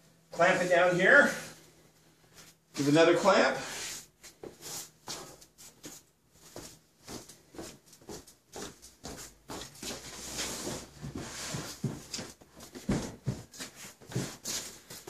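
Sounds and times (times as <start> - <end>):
footsteps on concrete: 4.3 - 15.0.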